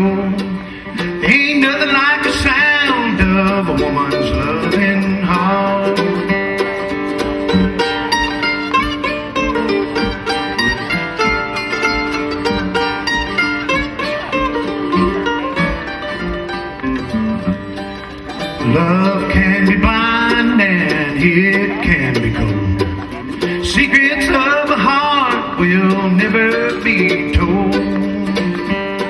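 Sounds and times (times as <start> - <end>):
man singing: 0.0 - 6.9, 18.6 - 29.0
bluegrass band playing: 0.0 - 29.0.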